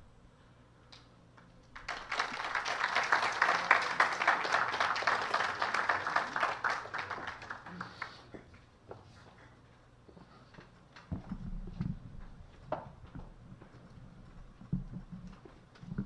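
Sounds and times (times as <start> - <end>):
audience applauding: 1.7 - 8.4.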